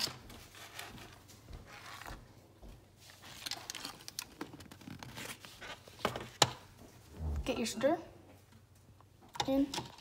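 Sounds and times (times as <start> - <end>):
paper plate rustling and scraping: 3.0 - 6.4.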